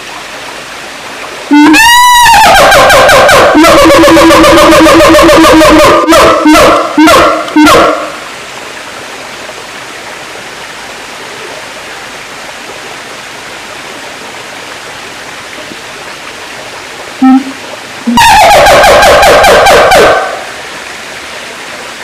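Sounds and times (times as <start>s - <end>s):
steady hiss: 0.0s - 1.8s, 6.8s - 18.2s, 20.2s - 22.0s
siamang calling: 1.5s - 8.2s, 17.2s - 20.5s.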